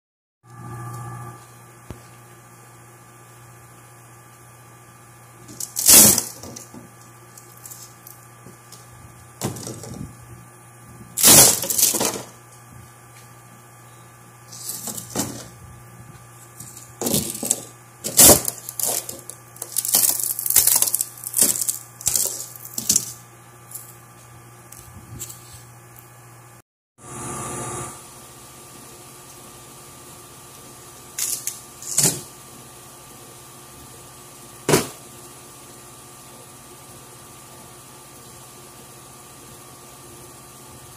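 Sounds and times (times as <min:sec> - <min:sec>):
steady low hum: 0:00.5 - 0:40.9
wood panels cracking and splintering: 0:11.2 - 0:12.3, 0:18.1 - 0:23.1.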